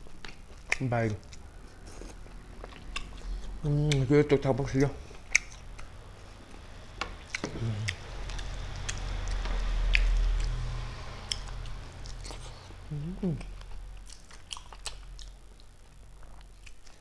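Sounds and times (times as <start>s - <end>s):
wet chewing: 0.0s - 4.1s, 4.7s - 6.0s, 7.1s - 17.0s
low rumble: 5.7s - 14.1s.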